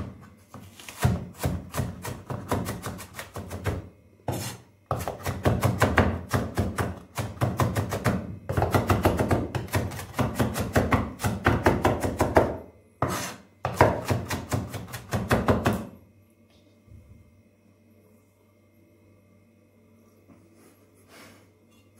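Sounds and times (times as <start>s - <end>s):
knife chopping on wooden board: 1.0s - 15.9s.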